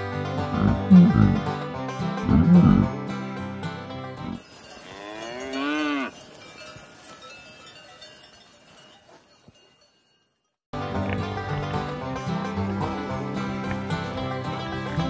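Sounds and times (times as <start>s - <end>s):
cow mooing: 4.3s - 6.2s
cowbell ringing: 4.4s - 10.6s.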